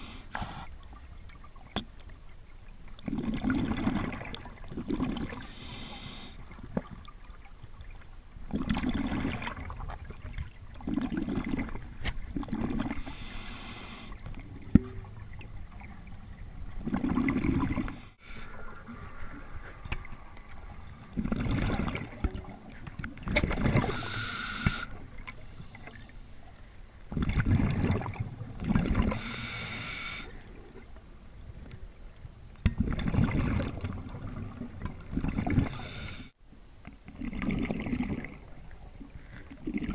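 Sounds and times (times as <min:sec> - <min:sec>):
exhaled bubbles rushing: 0:03.0 - 0:05.5, 0:08.5 - 0:13.0, 0:14.2 - 0:24.0, 0:27.1 - 0:29.2, 0:32.8 - 0:35.7, 0:37.1 - 0:38.5, 0:39.5 - 0:39.9
regulator hissing inhalation: 0:05.5 - 0:06.4, 0:13.0 - 0:14.2, 0:23.9 - 0:24.9, 0:29.2 - 0:30.3, 0:35.7 - 0:36.4.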